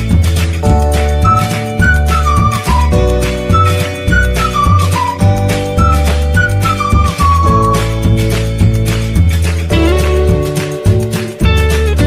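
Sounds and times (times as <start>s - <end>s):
repeating bass line: 0.0s - 12.0s
flute-like melody: 0.6s - 8.3s.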